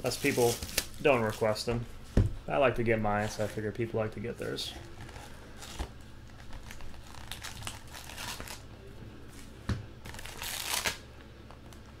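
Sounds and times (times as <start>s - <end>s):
packaging crinkling and rustling: 0.0s - 1.6s, 4.8s - 8.7s, 9.3s - 11.0s.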